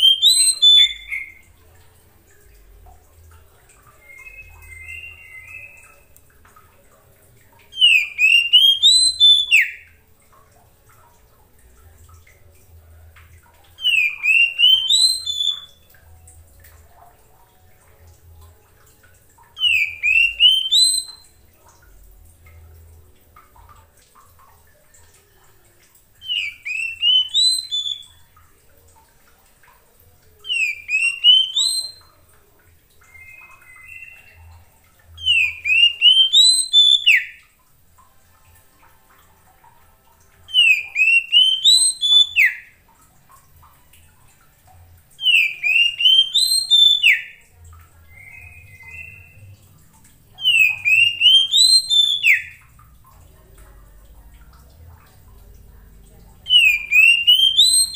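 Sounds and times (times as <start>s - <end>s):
bird singing whistled phrases: 0.0s - 1.4s, 3.8s - 6.1s, 7.7s - 10.0s, 13.8s - 15.9s, 19.6s - 21.4s, 26.2s - 28.2s, 30.4s - 32.2s, 33.1s - 34.5s, 35.2s - 37.4s, 40.5s - 42.8s, 45.2s - 47.4s, 48.0s - 49.5s, 50.4s - 52.6s, 56.5s - 57.9s.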